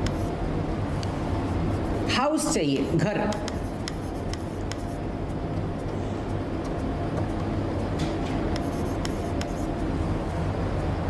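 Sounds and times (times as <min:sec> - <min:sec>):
scratchy writing strokes: 0:00.0 - 0:00.4, 0:01.5 - 0:02.7, 0:03.3 - 0:05.0, 0:08.5 - 0:09.8.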